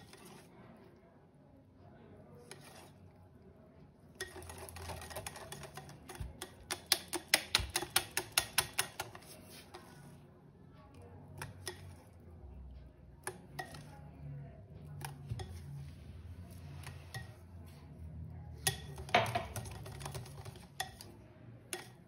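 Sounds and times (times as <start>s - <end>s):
utensil scraping mixing bowl: 0.0s - 0.8s, 2.4s - 3.3s, 4.1s - 10.2s, 11.4s - 12.6s, 13.2s - 14.1s, 14.8s - 22.0s
utensil clicking against bowl: 4.2s - 9.2s, 21.7s - 22.0s.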